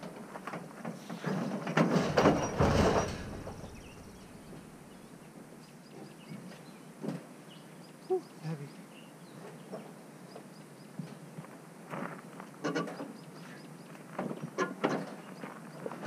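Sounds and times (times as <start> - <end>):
loud crash and clatter: 1.4 - 4.6
short knocks: 1.8 - 4.7
birds chirping faintly: 3.0 - 11.1.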